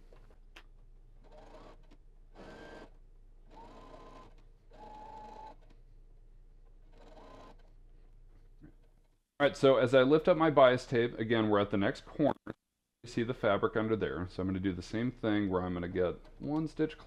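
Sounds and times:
sewing machine stitching: 1.2s - 5.6s.

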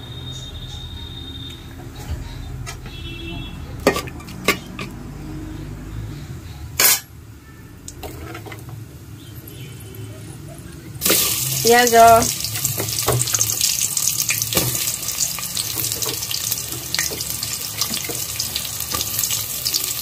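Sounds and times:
metal utensil clinking on a pot: 3.8s - 5.0s.

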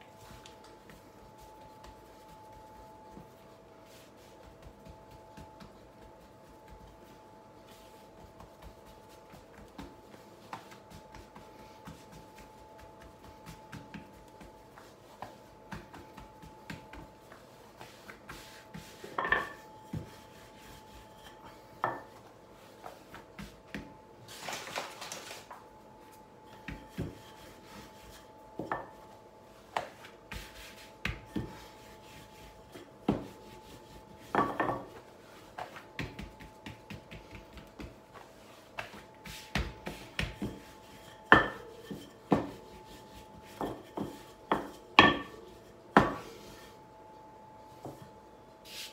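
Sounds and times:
faint steady hum: 0.0s - 48.9s
hands rubbing and patting dough: 0.0s - 48.9s
rolling pin knocking on counter: 43.6s - 45.4s.

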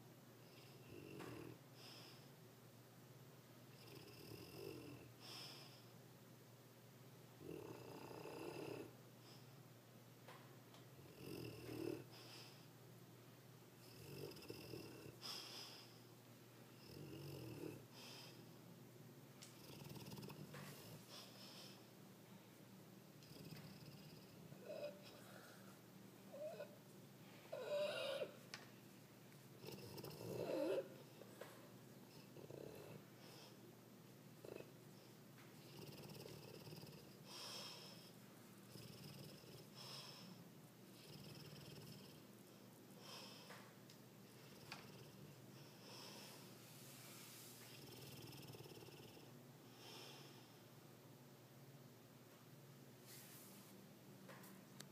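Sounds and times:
dog snoring faintly: 0.4s - 2.3s, 3.7s - 5.9s, 7.4s - 9.5s, 11.0s - 12.7s, 13.8s - 16.1s, 16.7s - 18.5s, 19.4s - 21.9s, 23.2s - 28.5s, 29.4s - 33.6s, 34.4s - 50.6s.

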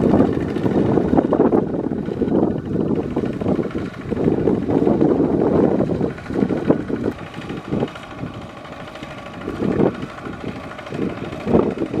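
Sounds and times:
diesel tractor engine running: 0.0s - 12.0s
wind buffeting microphone: 0.0s - 12.0s.

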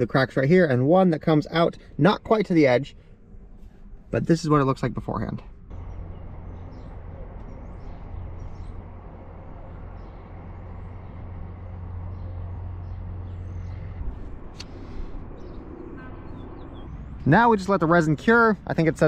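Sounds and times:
low rumble: 2.9s - 18.0s.

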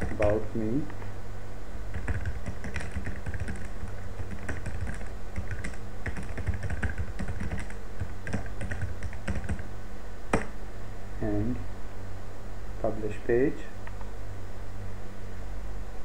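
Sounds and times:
typing on computer keyboard: 0.0s - 0.3s, 1.9s - 9.6s
steady low hum: 0.0s - 16.0s.

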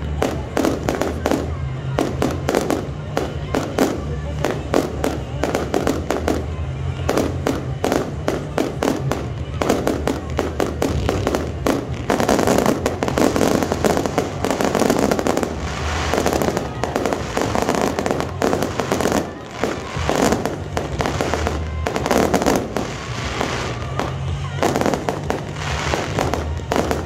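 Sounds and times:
fireworks bursts and crackling: 0.0s - 27.0s.

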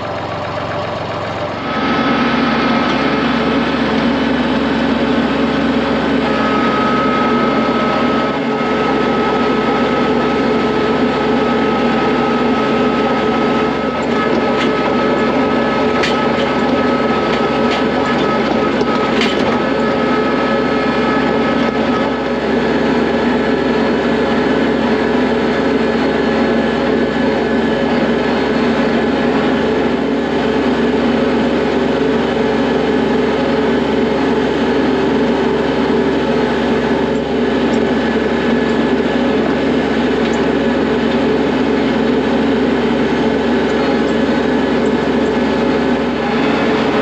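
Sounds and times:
steady high whine: 0.0s - 47.0s
tractor diesel engine running: 0.0s - 47.0s.

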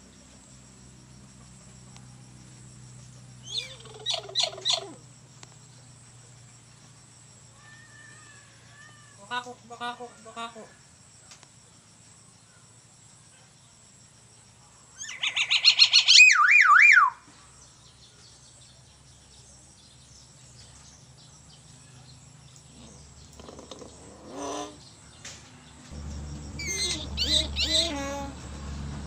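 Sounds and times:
bird mimicking a siren: 15.1s - 17.2s, 26.6s - 28.0s.

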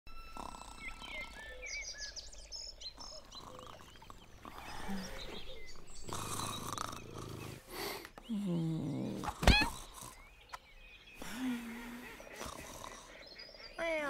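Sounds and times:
birds chirping: 0.1s - 14.0s.

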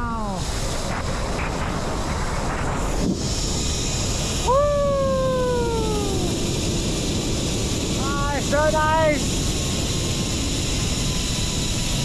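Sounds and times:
person calling whoa: 0.0s - 0.4s, 4.4s - 6.5s
wind rush on microphone: 0.0s - 12.0s.

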